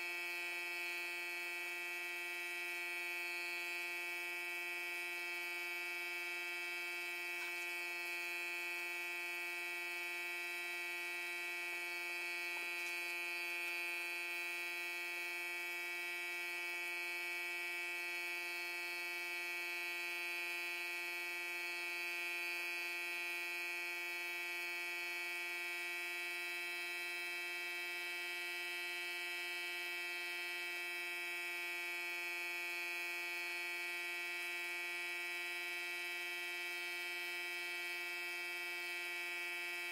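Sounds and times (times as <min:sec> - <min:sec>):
air compressor humming: 0:00.0 - 0:27.7.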